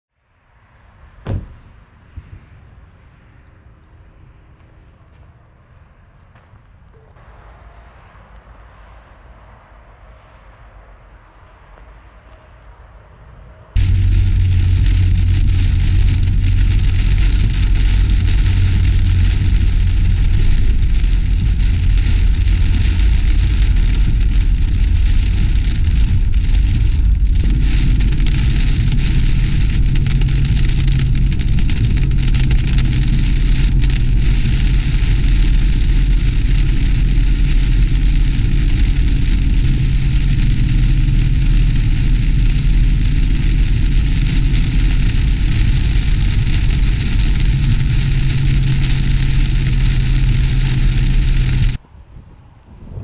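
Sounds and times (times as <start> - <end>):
engine and tyre rumble: 0.1 - 53.0
heavy rain on car roof: 13.8 - 51.8.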